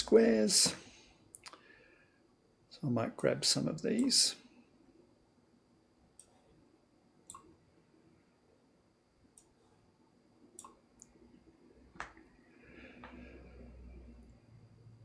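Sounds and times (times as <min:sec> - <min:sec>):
computer mouse clicks: 0:06.2 - 0:06.4, 0:07.3 - 0:07.5, 0:10.6 - 0:11.1.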